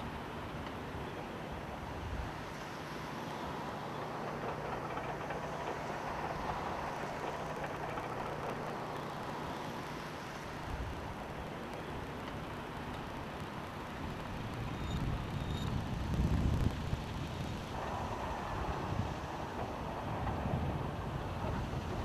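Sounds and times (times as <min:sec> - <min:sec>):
vehicle engine humming: 0:00.0 - 0:22.0
rushing noise: 0:14.0 - 0:22.0.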